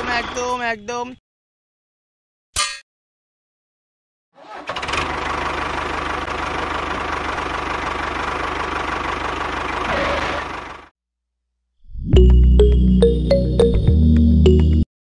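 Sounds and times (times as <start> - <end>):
heavy engine with rhythmic knock: 4.5 - 10.9.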